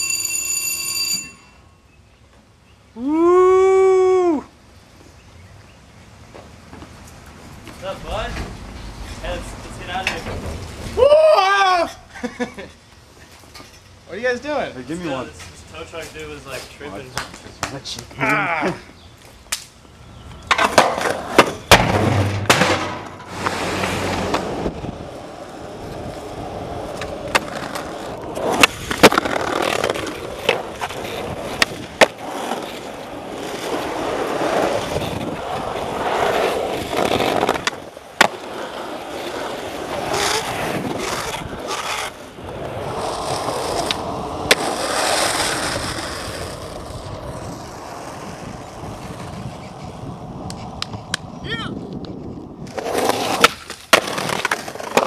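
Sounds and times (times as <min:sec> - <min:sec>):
skateboard wheels rolling on asphalt: 0:00.0 - 0:55.0
skateboard clacks: 0:20.4 - 0:51.3, 0:52.0 - 0:55.0.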